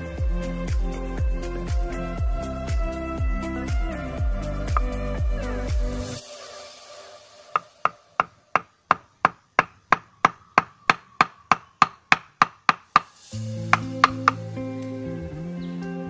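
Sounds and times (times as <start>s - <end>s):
background music: 0.0s - 9.2s, 12.9s - 16.0s
wooden club hammering machete blade: 7.6s - 14.4s.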